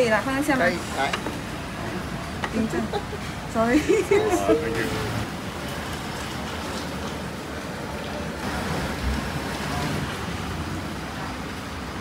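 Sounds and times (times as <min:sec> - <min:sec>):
road traffic rumble and hiss: 0:00.0 - 0:12.0.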